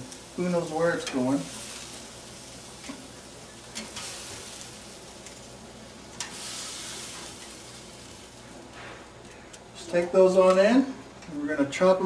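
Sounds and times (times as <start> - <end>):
steaks sizzling on a grill: 0.0 - 12.0
metal tongs clicking on grate: 3.7 - 4.1, 6.2 - 6.4.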